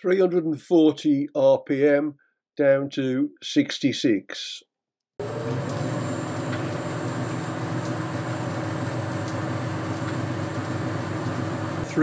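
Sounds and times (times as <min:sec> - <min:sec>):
lathe motor humming: 0:05.2 - 0:12.0.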